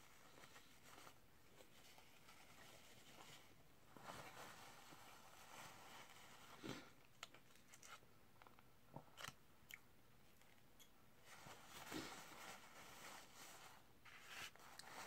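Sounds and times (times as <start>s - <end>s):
paper napkin rustling: 0.0s - 6.9s, 11.2s - 15.0s.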